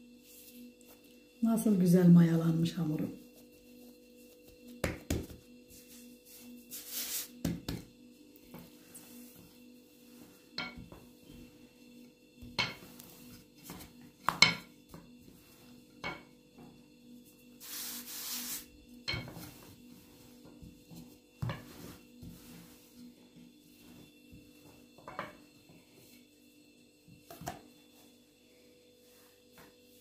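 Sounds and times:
dishes and utensils clinking: 10.6 - 11.0.

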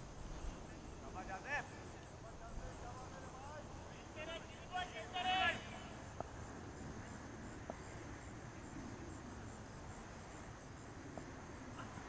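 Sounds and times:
insect chirping: 0.0 - 12.0
faint ticks: 7.6 - 8.0, 11.0 - 12.0.

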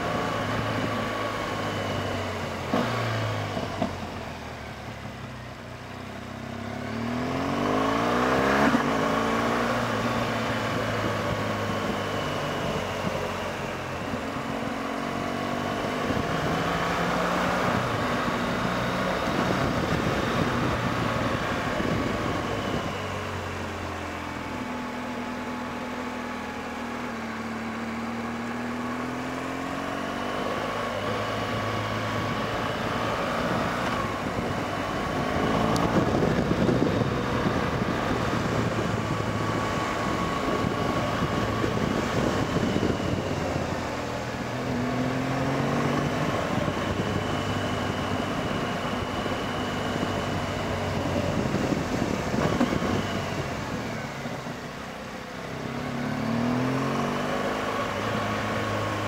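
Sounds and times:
motorcycle engine revving: 6.3 - 59.0.

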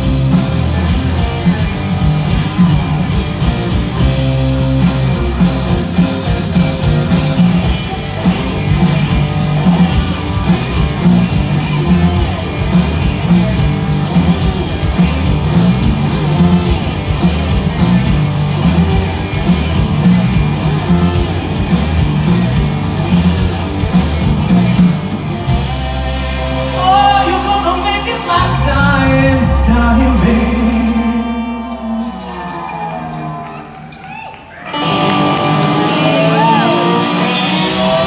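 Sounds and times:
bending guitar melody: 0.0 - 33.4, 34.6 - 38.0
blues-rock band playing: 0.0 - 38.0.

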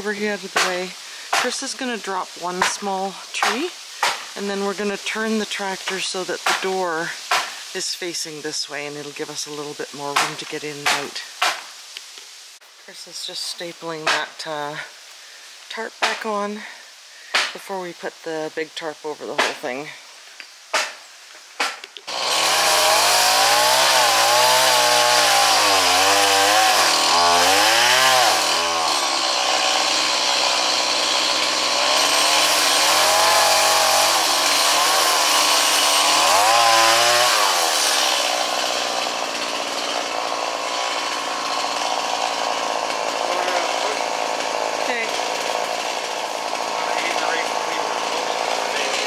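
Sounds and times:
chainsaw revving: 0.0 - 7.8, 22.0 - 49.0.

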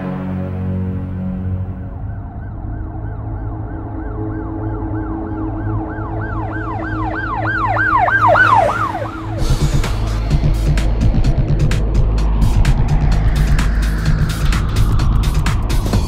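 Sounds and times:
steady low drone: 0.0 - 16.0
electronic siren-like warble: 1.2 - 10.2.

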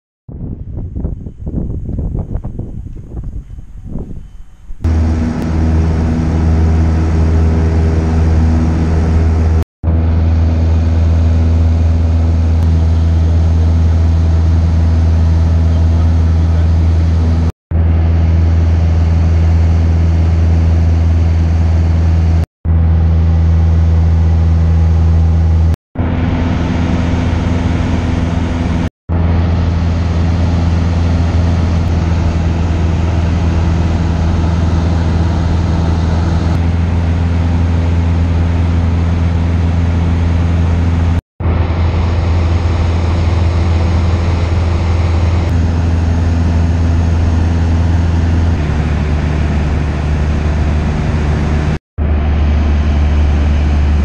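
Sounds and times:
rush of air: 0.3 - 15.4
airplane engine droning: 0.3 - 54.0.

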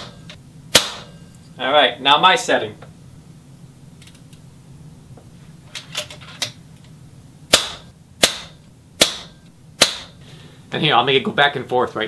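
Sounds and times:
air rifle shot: 0.0 - 1.2, 7.5 - 10.2.

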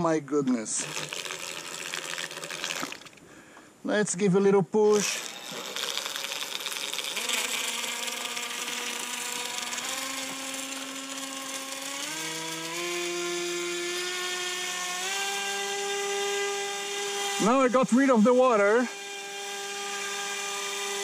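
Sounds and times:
small electric motor whine: 4.9 - 17.9, 18.6 - 21.0.

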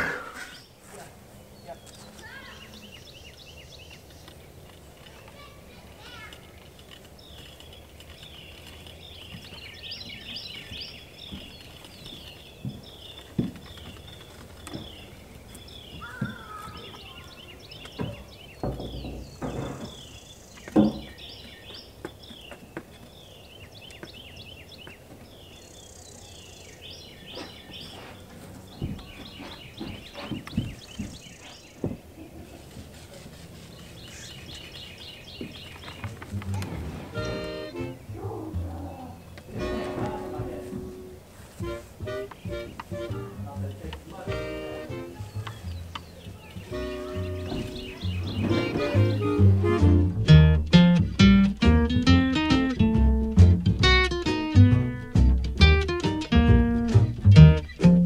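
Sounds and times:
birds chirping: 0.0 - 58.0
dull thuds and knocks: 11.2 - 15.1, 17.8 - 22.9, 28.7 - 32.1, 46.6 - 52.0.

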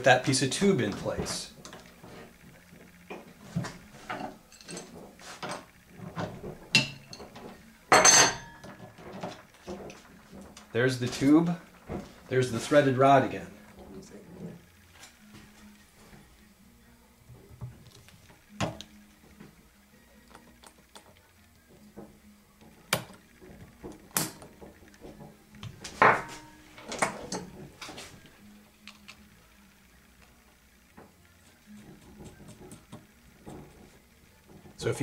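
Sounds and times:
metal tools clicking and clanking: 4.0 - 11.6, 26.0 - 27.9.

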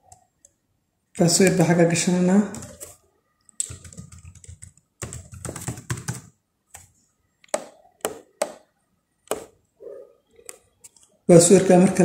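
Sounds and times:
typing on a computer keyboard: 2.5 - 2.9, 3.5 - 6.9.

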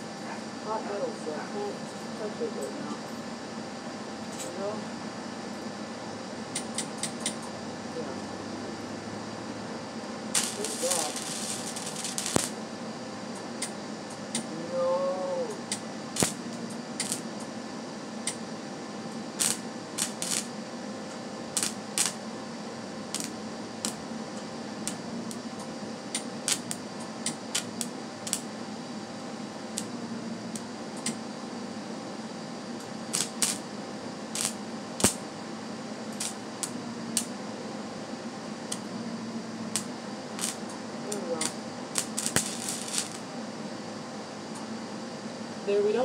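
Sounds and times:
welding arc crackling and hissing: 6.5 - 8.1, 9.3 - 43.4.

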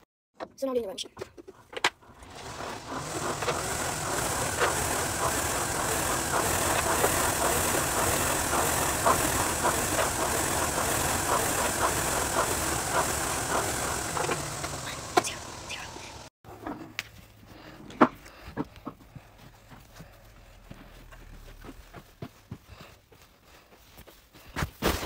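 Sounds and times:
rowing machine clicks: 2.0 - 16.3
rowing machine whirring hiss: 2.1 - 16.3.

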